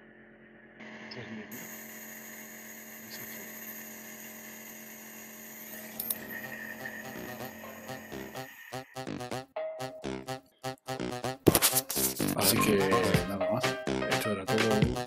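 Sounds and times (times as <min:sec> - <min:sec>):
nebulizer motor hum: 0:00.8 - 0:09.1.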